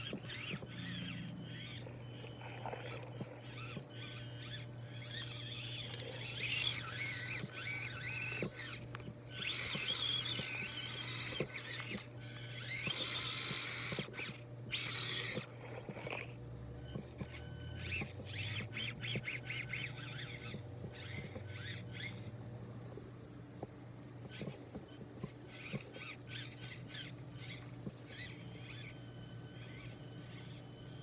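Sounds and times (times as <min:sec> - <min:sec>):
toy car electric motor whining: 0:00.0 - 0:22.4, 0:23.5 - 0:31.0.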